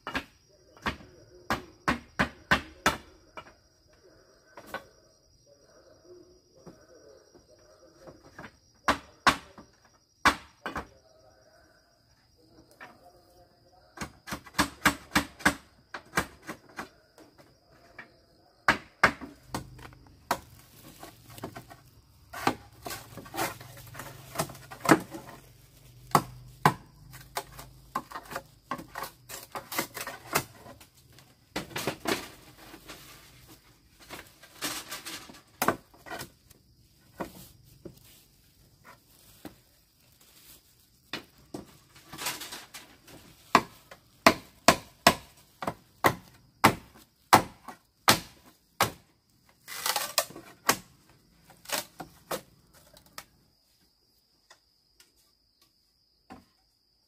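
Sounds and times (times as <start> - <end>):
hand tool striking wood: 14.0 - 16.9, 18.7 - 25.4, 26.0 - 30.8, 35.6 - 36.3, 43.2 - 49.0.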